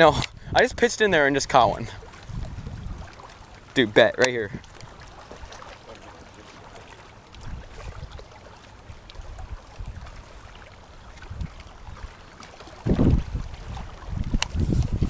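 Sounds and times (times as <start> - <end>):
wind rumbling on microphone: 0.0 - 3.3, 7.3 - 8.3, 8.9 - 12.2, 12.8 - 15.0.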